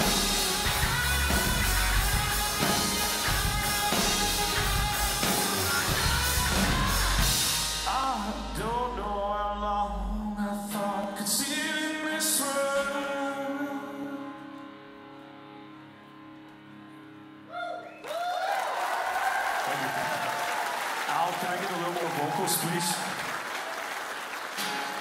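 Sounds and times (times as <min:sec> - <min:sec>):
drums: 0:00.0 - 0:09.2
electric guitar: 0:00.0 - 0:09.4, 0:10.9 - 0:17.6
bass guitar: 0:00.0 - 0:10.9.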